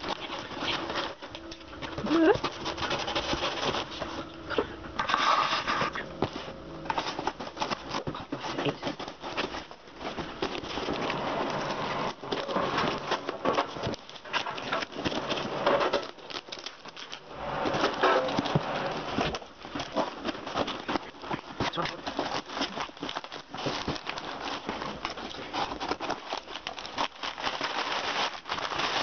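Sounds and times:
cardboard crackling and rustling: 0.0s - 29.0s.

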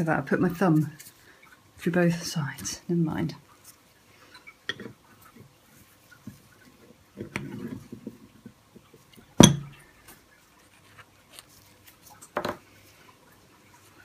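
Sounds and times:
metallic knock ringing: 9.4s - 9.7s.

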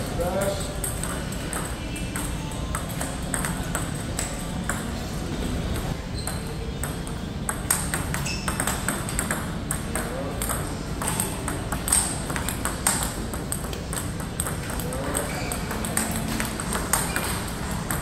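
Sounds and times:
ball bouncing on table: 0.8s - 4.9s, 5.8s - 18.0s
ball clicking off paddles: 6.8s - 18.0s.

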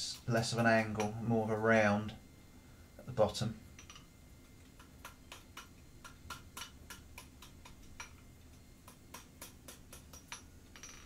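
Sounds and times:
hammer tapping metal on anvil: 0.4s - 1.2s, 4.8s - 11.0s.

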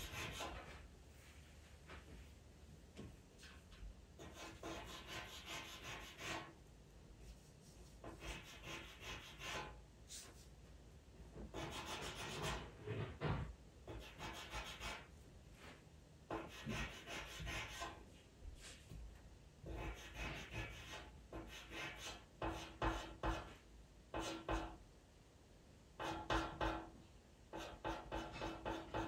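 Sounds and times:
pencil scratching on paper: 0.0s - 0.8s, 4.2s - 6.6s, 7.2s - 10.4s, 11.5s - 12.8s, 13.9s - 15.1s, 16.3s - 18.0s, 19.7s - 23.6s.

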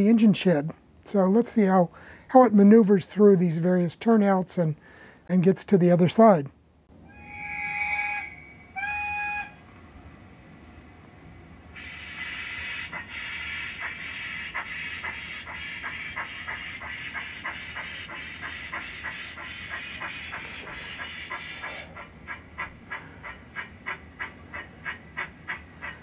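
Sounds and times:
steam whistle toots: 7.0s - 9.6s.

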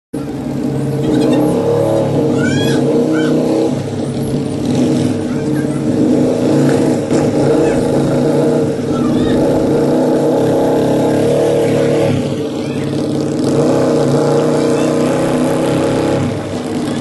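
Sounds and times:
motorcycle engine running: 0.2s - 17.0s.

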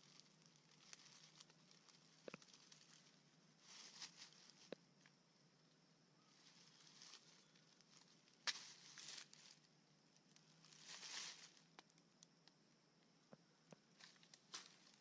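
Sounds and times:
rustling and scraping of root: 0.0s - 5.2s, 6.3s - 12.3s, 14.0s - 15.0s
root snapping: 8.4s - 8.7s.

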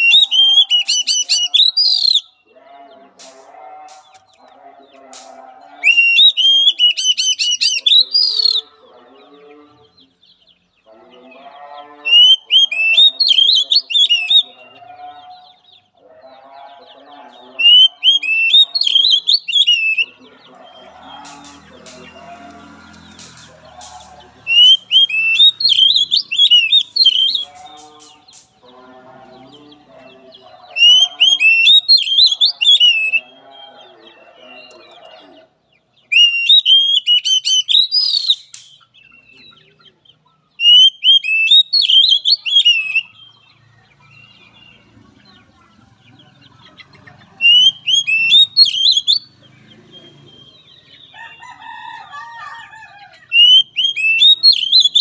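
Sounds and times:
bird singing high whistled notes: 0.0s - 2.4s, 5.8s - 8.7s, 17.6s - 20.1s, 24.5s - 27.6s, 30.8s - 33.3s, 36.2s - 39.4s, 40.6s - 43.2s, 47.4s - 49.3s, 53.4s - 55.0s
fainter lower bird calls: 17.6s - 28.6s.

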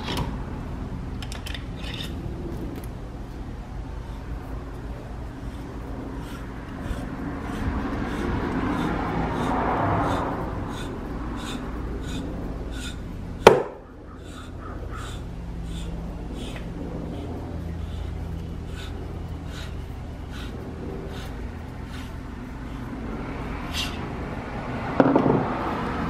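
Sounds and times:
sharp metal knock: 13.4s - 13.8s.

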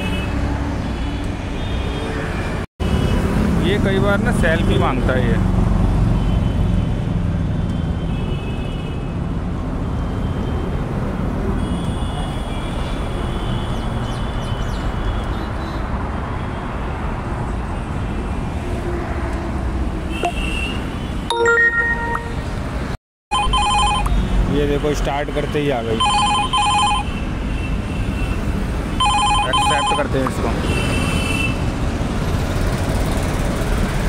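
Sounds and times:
road traffic rumble: 0.0s - 34.0s
phone alert chiming: 21.3s - 22.5s, 23.3s - 24.1s, 26.0s - 27.0s, 29.0s - 30.2s.

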